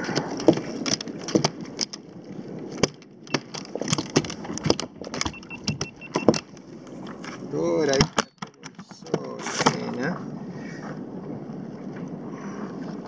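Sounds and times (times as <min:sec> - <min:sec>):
fish knocking against plastic kayak: 0:00.1 - 0:02.0, 0:02.7 - 0:10.0.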